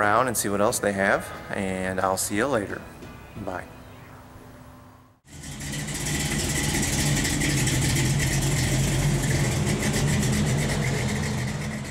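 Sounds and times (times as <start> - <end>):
engine idling: 5.3 - 11.9.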